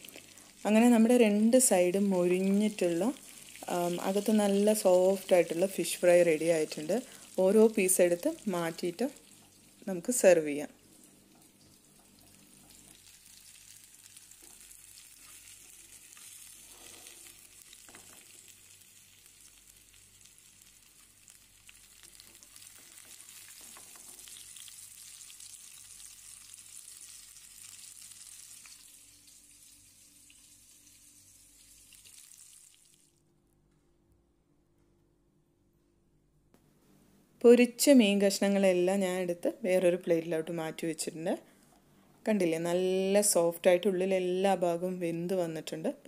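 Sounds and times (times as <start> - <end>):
fish sizzling in hot oil: 0.0 - 10.5, 11.1 - 33.1.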